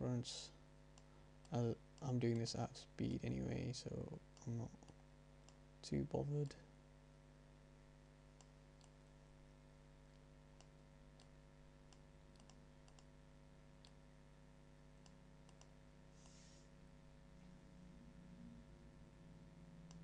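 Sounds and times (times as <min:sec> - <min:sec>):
steady low hum: 0:00.0 - 0:20.0
computer mouse clicks: 0:08.4 - 0:09.0, 0:11.9 - 0:13.1, 0:15.0 - 0:16.4.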